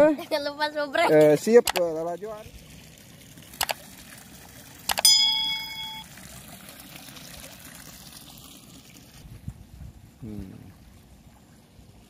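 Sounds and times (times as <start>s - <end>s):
quick clicks: 1.7s - 1.9s, 3.6s - 3.8s
bell chime: 4.9s - 6.0s.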